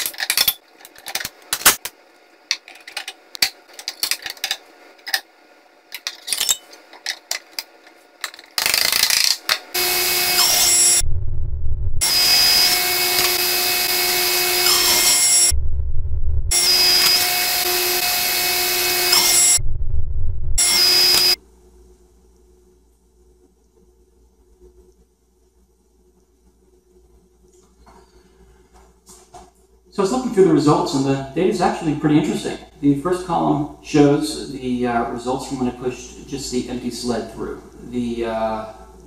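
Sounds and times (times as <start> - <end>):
table saw whining: 9.8 - 11.0, 12.0 - 15.5, 16.5 - 19.6, 20.6 - 21.4.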